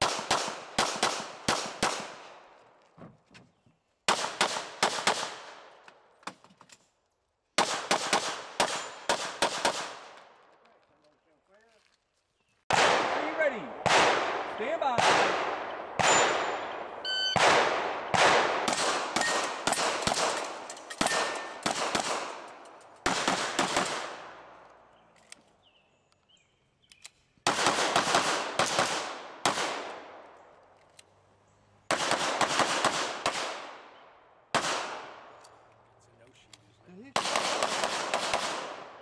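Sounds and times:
rapid handgun fire: 0.0 - 2.4, 4.1 - 5.7, 7.6 - 10.2, 12.7 - 24.4, 27.5 - 30.2, 31.9 - 33.9, 34.5 - 35.3, 37.1 - 39.0.

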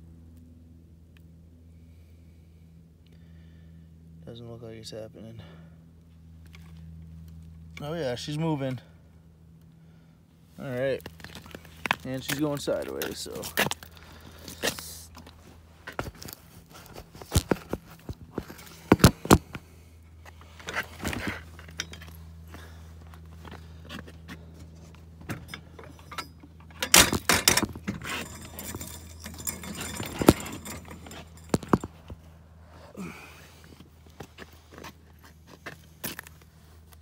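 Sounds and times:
low steady hum: 0.0 - 37.0
metallic jingling: 25.4 - 32.1.

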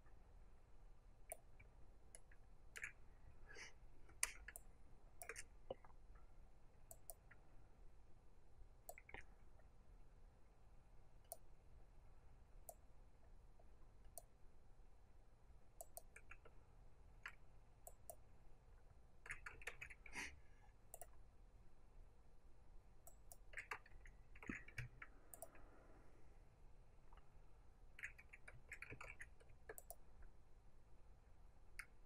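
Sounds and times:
computer mouse clicks: 1.3 - 3.1, 4.1 - 6.0, 6.9 - 7.4, 8.8 - 9.3, 11.3 - 11.5, 14.1 - 14.4, 15.8 - 16.6, 17.2 - 18.3, 19.2 - 20.2, 20.9 - 21.2, 23.0 - 25.7, 27.9 - 30.1.

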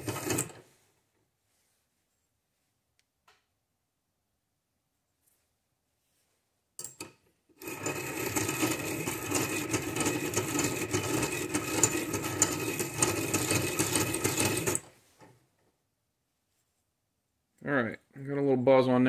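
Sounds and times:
metal grinding: 0.0 - 0.6, 7.6 - 14.9.

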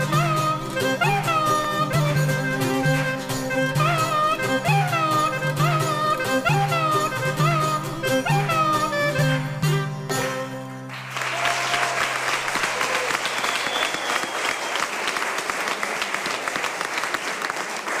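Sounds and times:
audience applause: 10.9 - 18.0.

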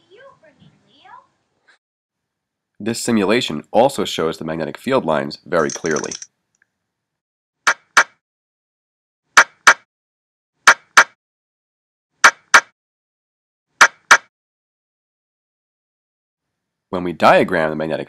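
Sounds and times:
sharp double clicks: 5.6 - 6.3, 9.4 - 9.8, 10.7 - 11.2, 12.2 - 12.7, 13.8 - 14.3.

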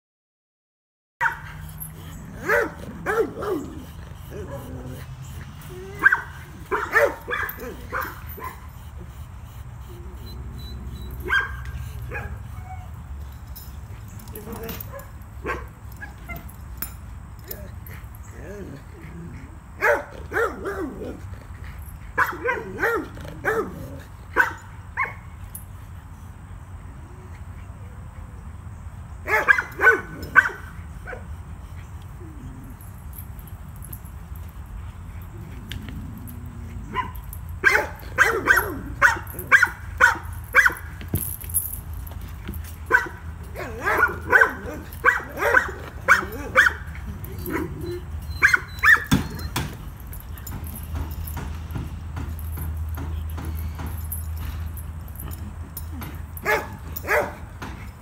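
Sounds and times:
dog barking and yelping: 1.2 - 13.1, 14.3 - 16.6, 17.4 - 21.3, 21.9 - 25.4, 29.2 - 32.8, 35.3 - 41.0, 42.7 - 51.1, 55.3 - 57.6.

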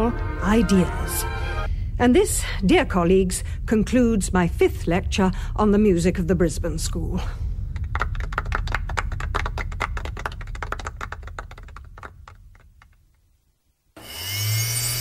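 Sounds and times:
small audience applause: 7.8 - 13.0.

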